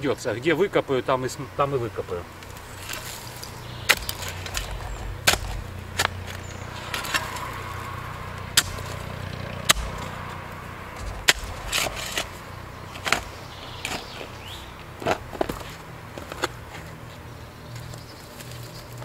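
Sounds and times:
spade scraping into stony clay: 11.0 - 14.1.

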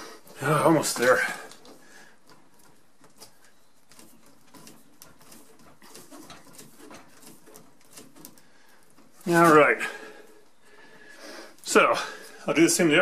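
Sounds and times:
screw creaking into wood: 0.0 - 10.0.

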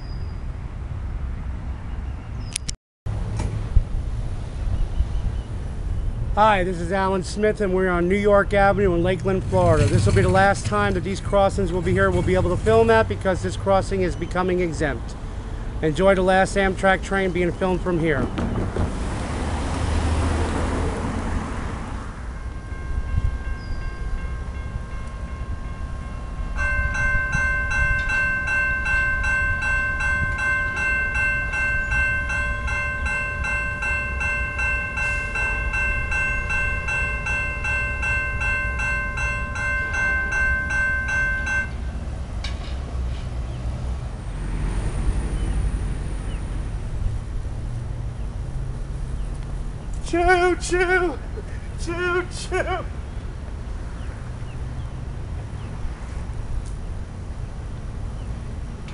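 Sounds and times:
crossing warning bell ringing: 6.7 - 15.0, 22.0 - 42.6
wind on microphone: 22.6 - 25.6.

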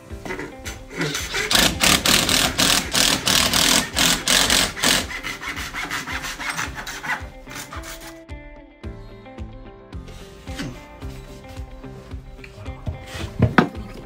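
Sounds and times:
soft acoustic background music: 0.0 - 14.0
rasping strokes on gypsum board: 4.1 - 8.2.

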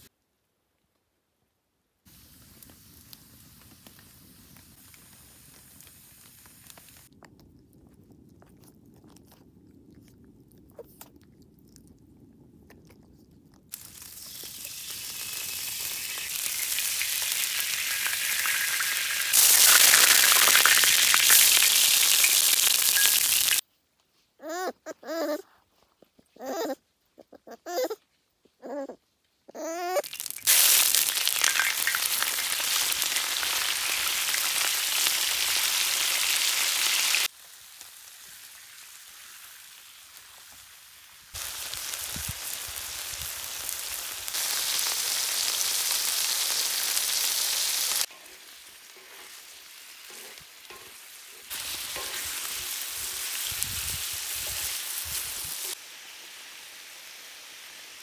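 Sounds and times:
oil sizzling in hot pan: 2.1 - 7.1, 13.7 - 23.6, 30.0 - 58.0
puppy whining: 24.4 - 30.0.

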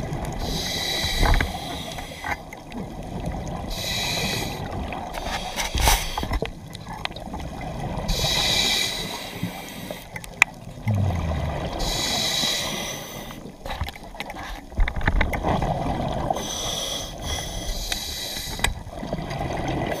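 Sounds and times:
bubbling exhalation: 10.8 - 12.2
regulator hissing inhalations: 11.8 - 13.4, 16.4 - 18.7
diving gear clicks and knocks: 13.6 - 15.6.

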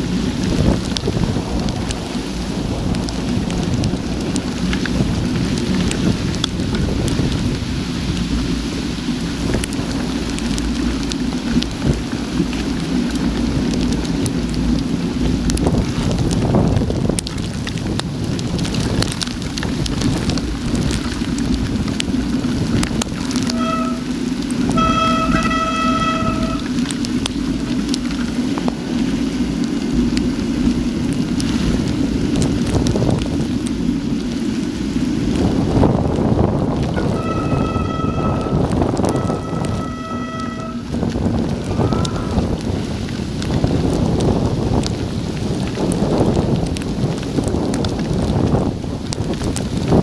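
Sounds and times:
clicks of raindrops striking: 0.0 - 50.0
heavy rain on camera housing: 0.0 - 50.0
low rumble: 0.0 - 50.0
wind noise on microphone: 0.0 - 50.0.

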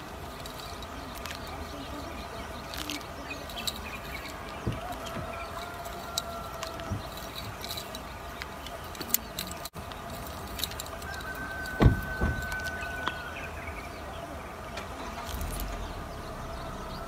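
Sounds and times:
dull thump: 11.8 - 12.6.

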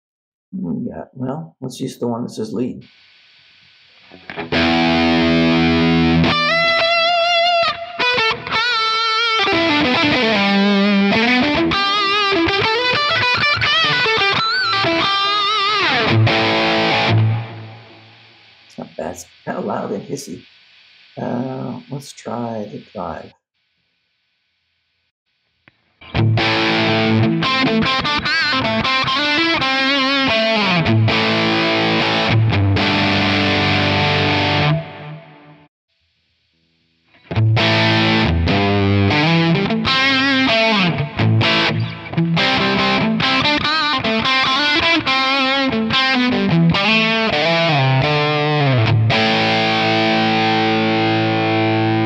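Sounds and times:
amplifier hiss: 2.4 - 10.4, 11.7 - 23.8
distorted electric guitar lead: 2.8 - 23.4, 26.0 - 35.7, 37.1 - 52.0.

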